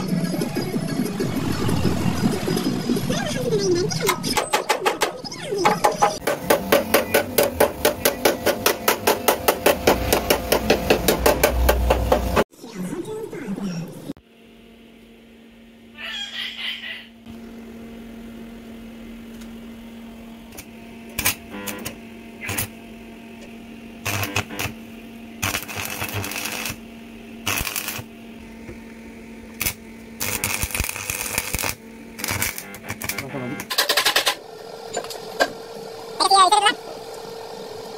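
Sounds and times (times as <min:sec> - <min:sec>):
steady low hum: 0:00.0 - 0:12.4, 0:17.1 - 0:37.9
welding arc crackling and sizzling: 0:20.5 - 0:22.8, 0:24.0 - 0:28.7, 0:29.4 - 0:37.9.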